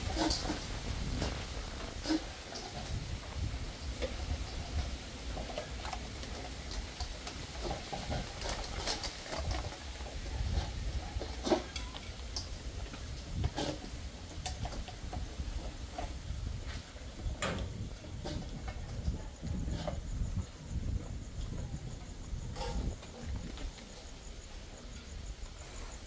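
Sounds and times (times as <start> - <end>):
wind rumble: 0.0 - 26.0.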